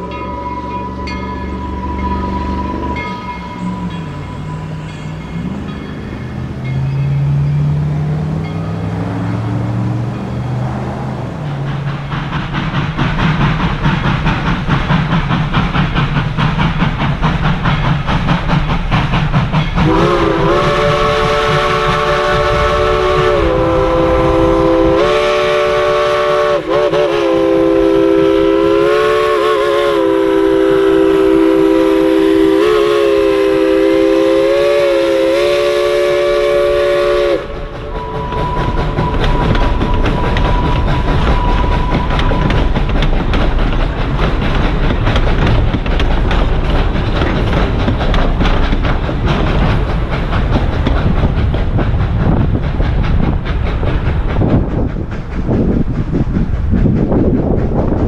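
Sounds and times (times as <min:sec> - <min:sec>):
locomotive chime whistle: 0:00.0 - 0:10.6, 0:19.6 - 0:43.0
steam train rumbling: 0:00.0 - 0:58.0.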